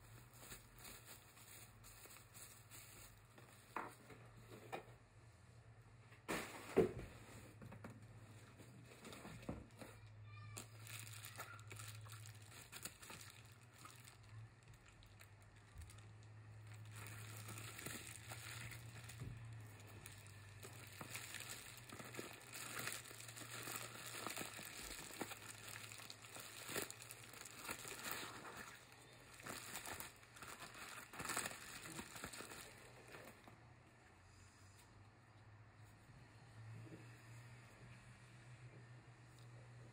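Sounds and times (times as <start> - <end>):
bubble wrap rustling: 0.0 - 4.0, 10.3 - 33.5.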